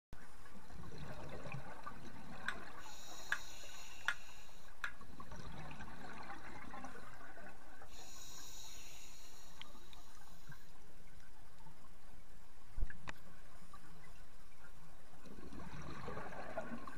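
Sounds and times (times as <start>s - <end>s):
diver breathing through regulator: 2.8s - 4.7s, 7.9s - 10.6s.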